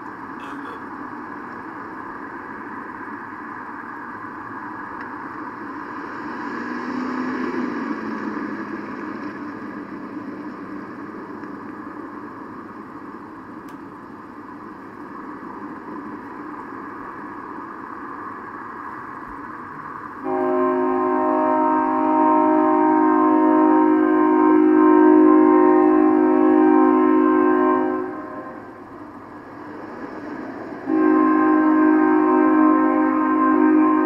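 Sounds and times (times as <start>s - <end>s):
hum of passing cars: 0.0s - 34.0s
vehicle passing loudly: 5.8s - 10.4s.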